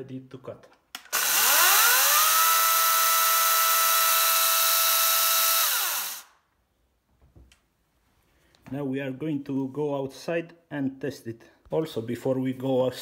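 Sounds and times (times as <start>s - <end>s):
chainsaw motor whining: 1.0s - 6.3s.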